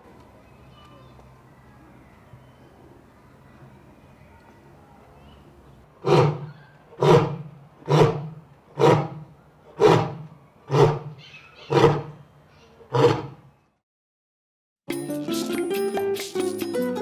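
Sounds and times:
big cat roaring grunts: 6.0 - 12.2, 12.9 - 13.4.

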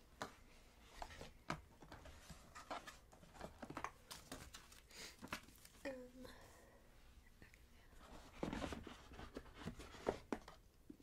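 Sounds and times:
cardboard and paper packaging rustling: 0.8 - 5.9, 8.0 - 10.7.

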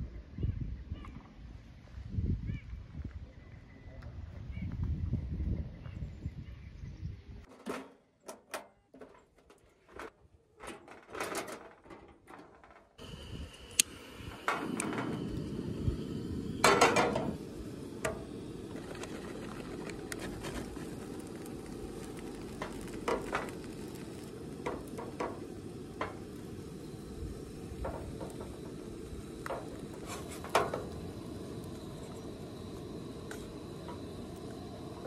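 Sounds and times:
gas burner running: 13.0 - 35.0
food frying in a pan: 16.6 - 35.0.

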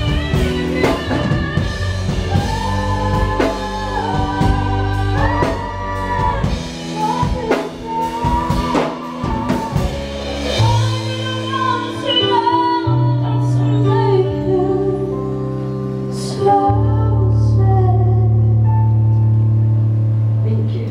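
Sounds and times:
backing singers: 0.0 - 15.1
woman singing lead: 0.0 - 19.0
bass guitar: 0.0 - 20.9
keyboard: 0.0 - 20.9.

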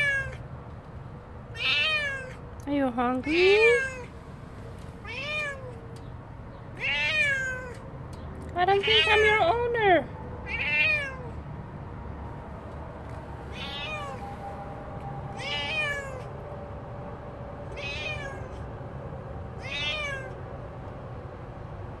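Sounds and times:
cat meowing: 0.0 - 0.4, 1.5 - 2.4, 3.2 - 4.1, 5.0 - 5.8, 6.7 - 7.8, 8.8 - 9.5, 10.4 - 11.4, 13.5 - 14.3, 15.4 - 16.3, 17.7 - 18.6, 19.6 - 20.4.

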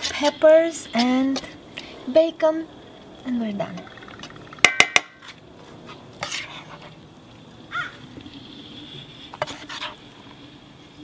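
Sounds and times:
metal spoon scraping: 3.9 - 7.0, 9.3 - 10.0.

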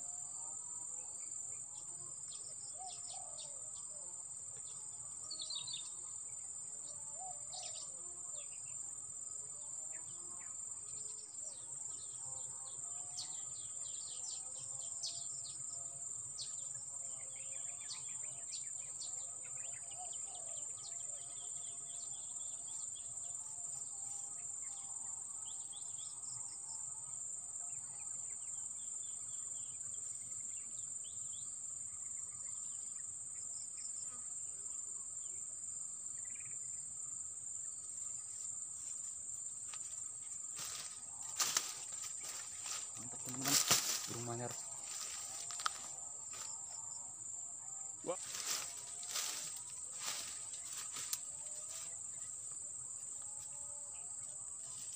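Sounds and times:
high-pitched insect drone: 37.6 - 54.9.

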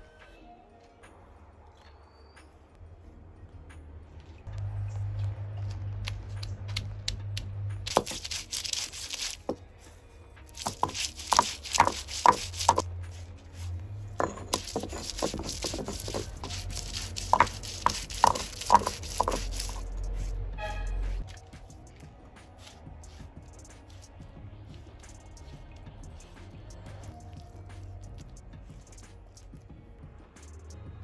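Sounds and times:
stone roller grinding garlic: 7.9 - 9.6, 10.6 - 20.3.

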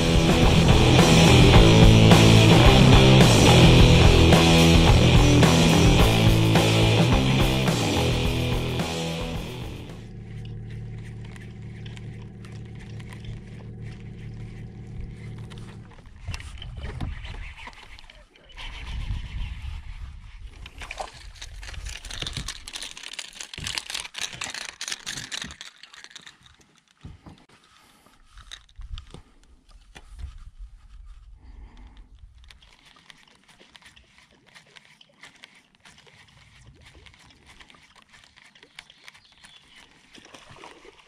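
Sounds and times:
fishing reel: 9.7 - 19.9, 20.5 - 26.9, 32.4 - 41.0
rustling and clicking: 9.9 - 19.4, 20.3 - 41.0
wind rumbling on microphone: 13.2 - 18.0, 18.6 - 22.7
fish splashing at surface: 39.8 - 41.0.

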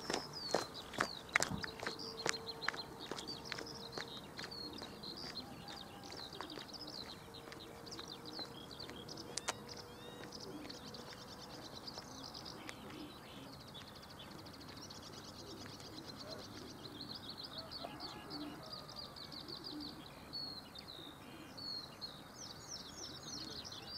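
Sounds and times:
songbirds chirping and trilling: 0.0 - 23.9
sharp clicks: 9.3 - 9.6.

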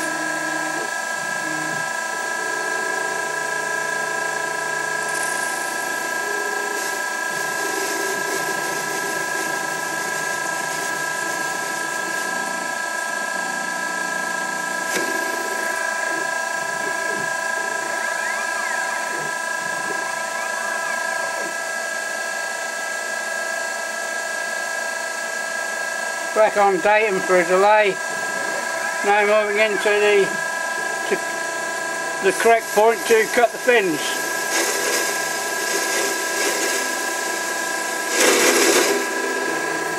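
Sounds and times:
lathe whine: 0.0 - 39.9
rising and falling whines: 14.9 - 22.7, 26.2 - 31.4.

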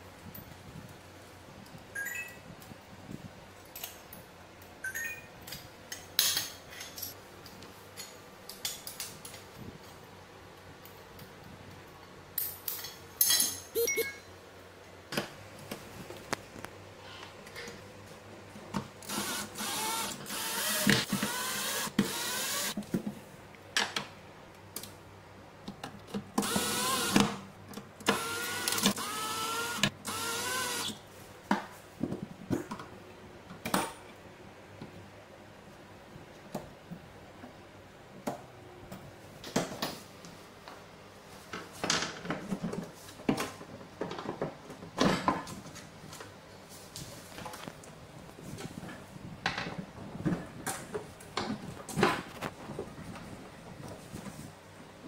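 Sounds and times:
cordless drill driving screws: 19.0 - 22.8, 26.4 - 27.4, 28.0 - 31.0.

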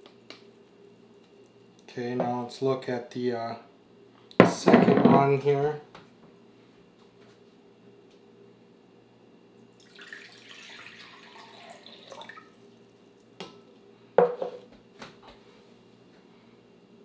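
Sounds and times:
knocks on wooden table: 4.4 - 5.2, 14.2 - 14.6
water pouring into glass jug: 9.7 - 12.7.

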